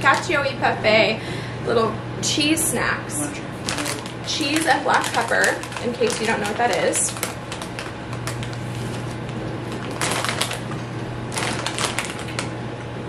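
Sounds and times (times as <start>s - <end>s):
low steady hum: 0.0s - 13.0s
plastic snack bag rustling: 3.6s - 12.5s.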